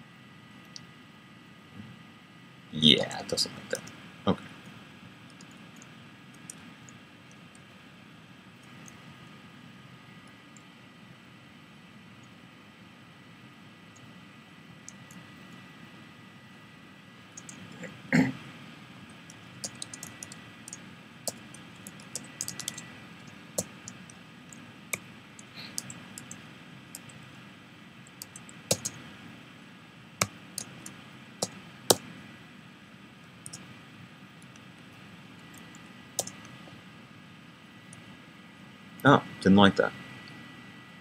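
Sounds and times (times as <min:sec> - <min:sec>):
keyboard typing: 0:05.3 - 0:07.5, 0:17.4 - 0:17.7, 0:19.1 - 0:27.4, 0:28.1 - 0:29.0, 0:30.2 - 0:32.0, 0:33.4 - 0:33.7, 0:35.5 - 0:36.6
low throat noise: 0:17.7 - 0:18.4.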